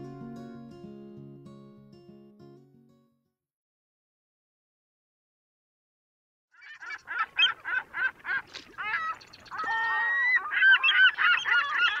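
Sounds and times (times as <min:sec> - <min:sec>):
gulls calling: 0:06.5 - 0:12.0.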